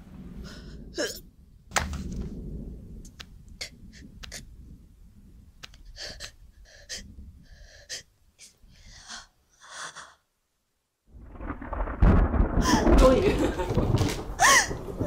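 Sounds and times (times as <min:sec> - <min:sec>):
person gasping and wheezing: 0:06.0 - 0:10.2, 0:14.4 - 0:14.8.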